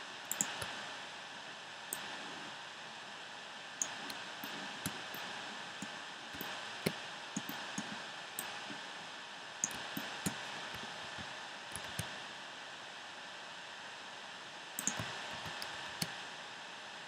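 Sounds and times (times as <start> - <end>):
microphone hiss: 0.0 - 17.0
mouse and keyboard clicks: 0.3 - 0.7, 6.4 - 8.5, 9.6 - 12.1, 14.8 - 16.2.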